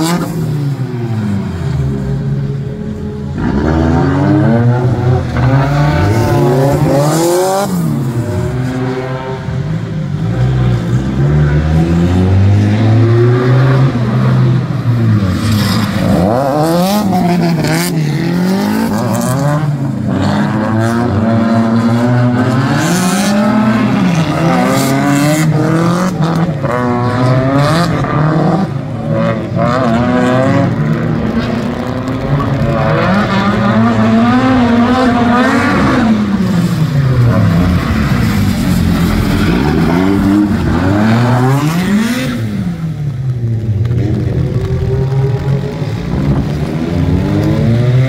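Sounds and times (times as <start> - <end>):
car engines revving: 0.0 - 48.0.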